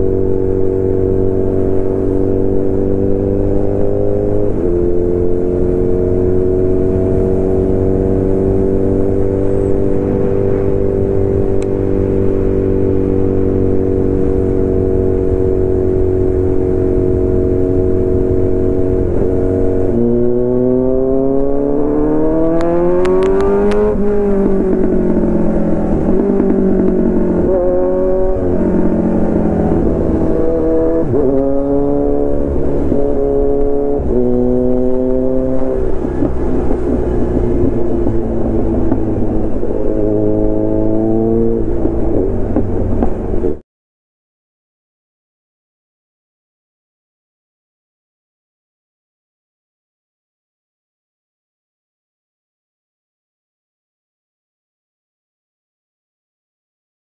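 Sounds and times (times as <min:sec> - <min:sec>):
motorcycle engine revving: 0:00.0 - 0:43.6.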